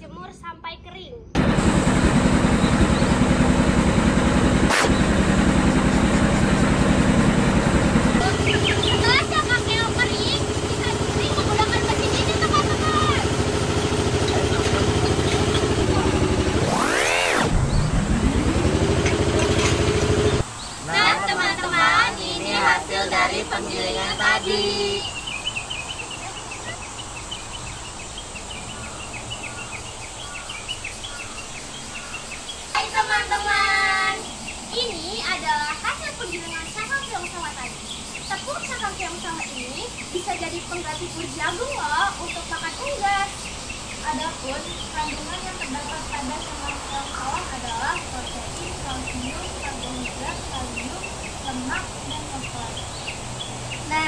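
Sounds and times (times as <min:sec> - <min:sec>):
grinding mill droning: 0:01.4 - 0:24.8
rapid high chirping: 0:08.2 - 0:17.9.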